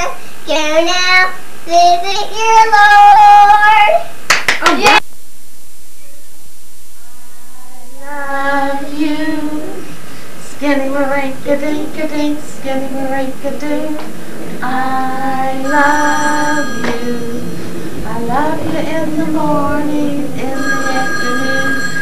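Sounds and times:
woman and child singing: 0:07.1 - 0:17.4, 0:18.1 - 0:21.8.

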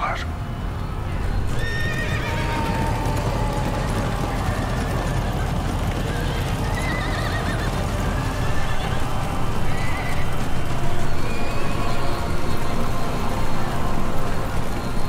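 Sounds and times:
horses galloping: 0:01.1 - 0:15.0
horses whinnying: 0:01.2 - 0:12.7.

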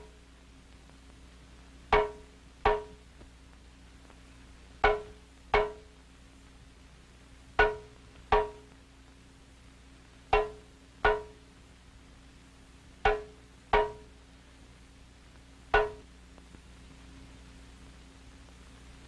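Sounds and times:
pitched percussive strikes: 0:02.0 - 0:03.0, 0:04.8 - 0:05.9, 0:07.6 - 0:08.7, 0:10.4 - 0:11.4, 0:13.1 - 0:14.1, 0:15.8 - 0:16.0.

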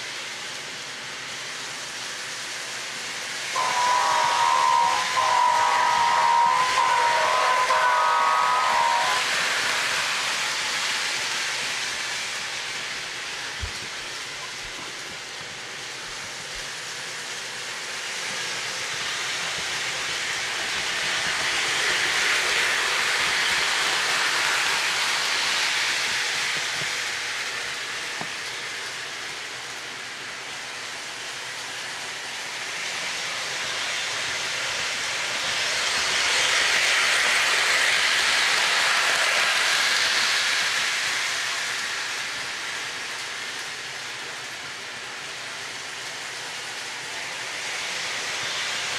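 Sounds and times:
model train rumbling on track: 0:00.0 - 0:48.9
train horn blast: 0:03.6 - 0:09.5.

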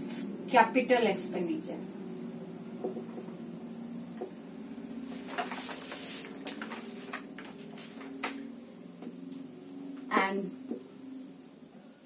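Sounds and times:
steady low hum: 0:00.0 - 0:12.0
marker scratching on whiteboard: 0:02.0 - 0:04.4, 0:09.0 - 0:11.6.

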